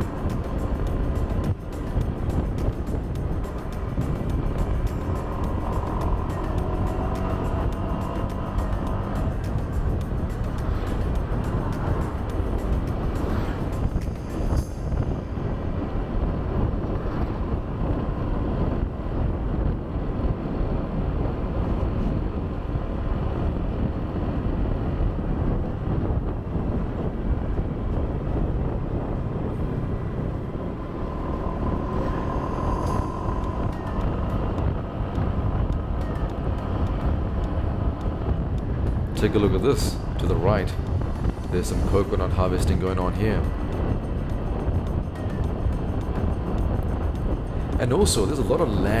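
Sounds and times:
scooter engine drone: 0.0s - 39.4s
tyres on road: 0.0s - 49.0s
wind rumble on microphone: 0.0s - 49.0s.

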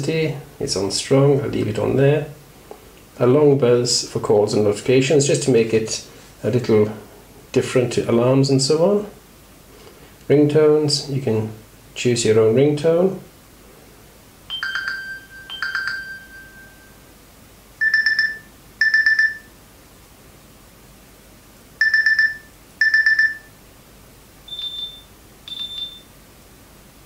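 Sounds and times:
short electronic beeps: 17.8s - 19.5s, 21.8s - 23.5s, 24.5s - 26.1s.

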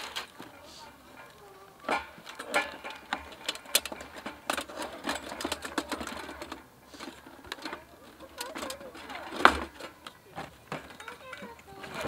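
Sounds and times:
metal cookware clinking: 0.8s - 6.4s.

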